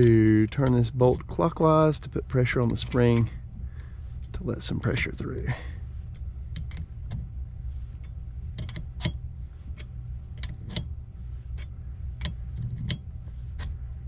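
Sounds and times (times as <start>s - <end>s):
wrench clicking on bolt: 0.0s - 1.3s.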